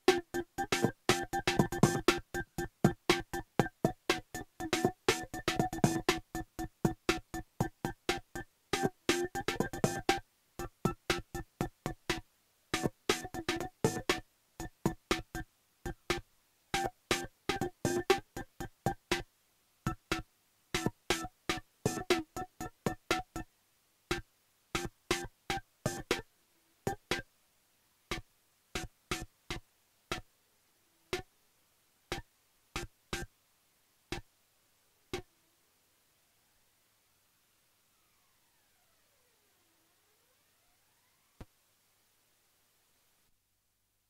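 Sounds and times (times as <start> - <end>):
drum machine tom hits: 12.8 - 14.2.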